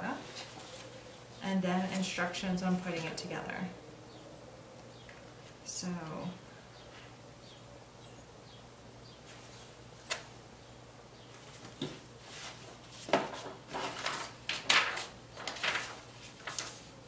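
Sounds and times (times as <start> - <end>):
paper rustling: 0.2 - 1.2, 1.8 - 2.3, 11.3 - 17.0.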